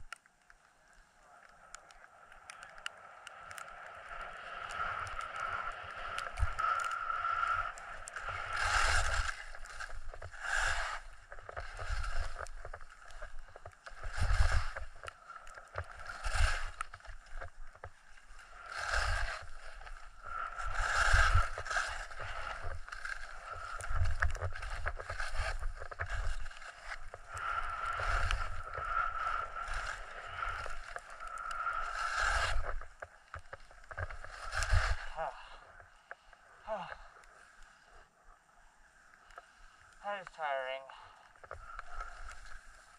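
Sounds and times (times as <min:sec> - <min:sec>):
skis scraping over snow: 0:02.8 - 0:35.7, 0:41.6 - 0:42.9.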